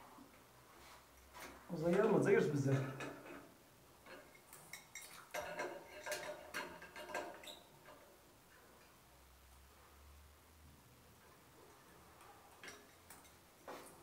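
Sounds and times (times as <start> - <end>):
wrench clinking on metal fittings: 4.1 - 8.0.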